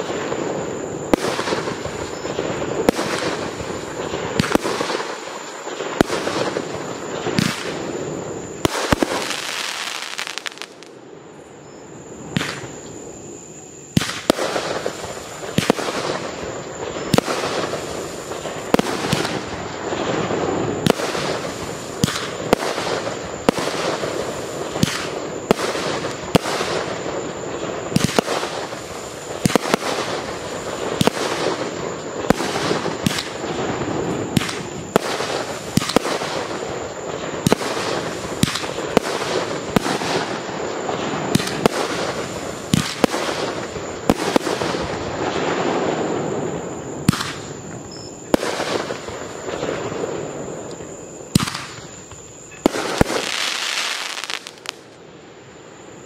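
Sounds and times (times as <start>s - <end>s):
fireworks rumble and crackle: 0.0s - 56.0s
fireworks launch thumps and bangs: 5.9s - 7.8s, 20.8s - 24.0s, 32.3s - 36.5s, 37.4s - 40.4s, 41.2s - 45.5s, 47.0s - 49.8s, 50.7s - 54.8s.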